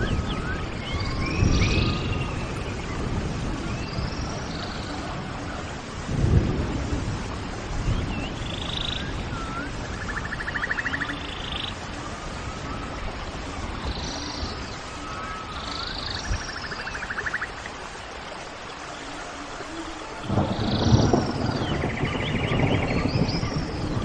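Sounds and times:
high arching whistles and chirps: 0.0 - 4.9, 7.8 - 11.8, 12.5 - 17.6.

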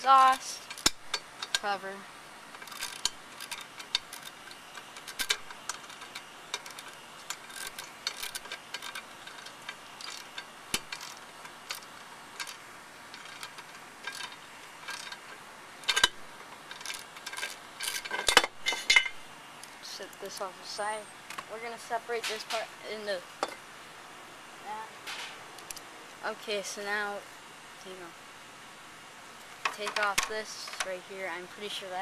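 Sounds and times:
socket ratchet clicking: 2.6 - 18.4.

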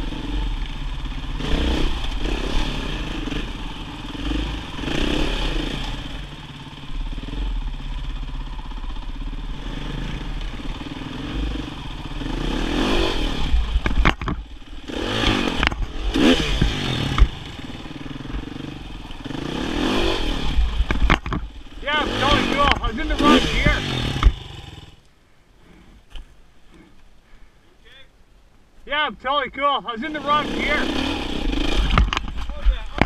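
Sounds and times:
dirt bike engine revving: 0.0 - 25.0, 29.9 - 33.0
bike clattering over stones: 31.8 - 33.0.

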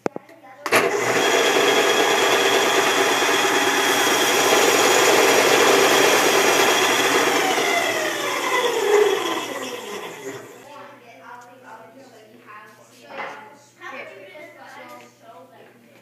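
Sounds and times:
belt sander sanding wood: 0.7 - 10.7.

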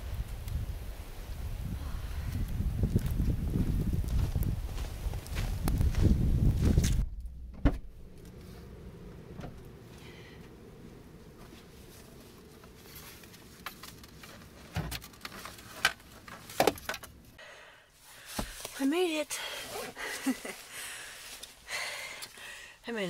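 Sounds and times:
footsteps crunching in snow: 2.8 - 7.0, 18.0 - 21.6.

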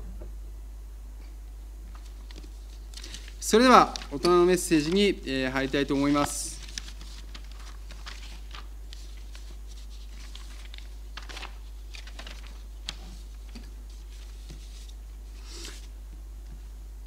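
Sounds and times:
steady low hum: 0.0 - 17.0
faint clicks and rustles: 6.0 - 15.0.

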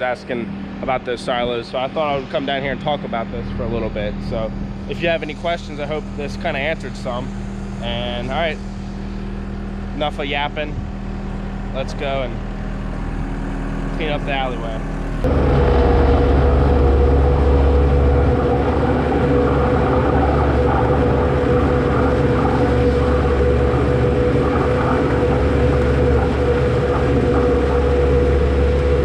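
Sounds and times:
loader engine whining: 0.0 - 29.0.

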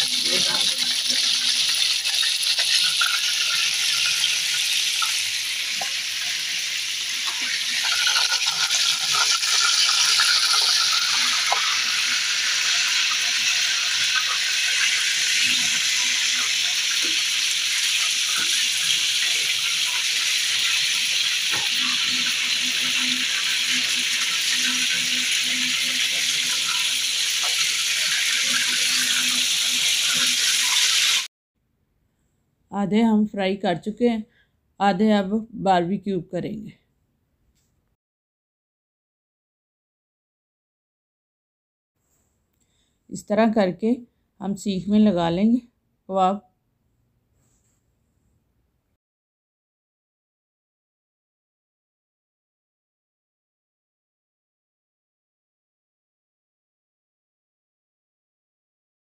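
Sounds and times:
oil sizzling in frying pan: 0.0 - 31.3.

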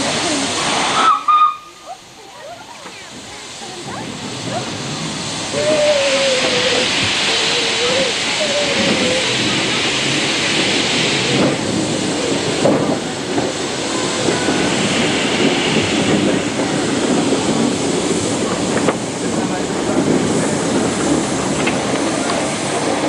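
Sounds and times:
steam locomotive hissing: 0.0 - 23.0.

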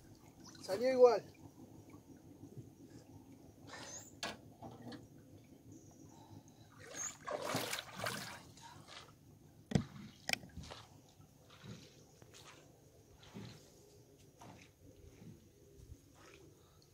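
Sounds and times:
water splashing and dripping: 6.8 - 9.1.

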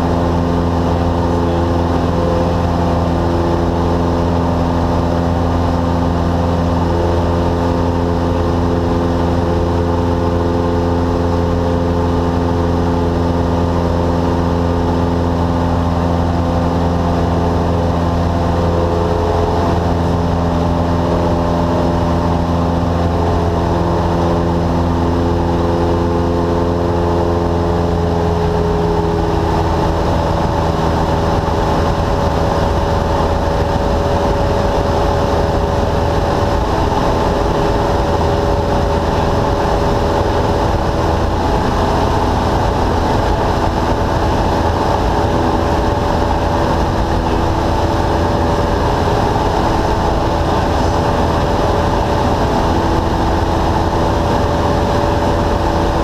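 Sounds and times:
aircraft engine and propeller droning: 0.0 - 56.0.

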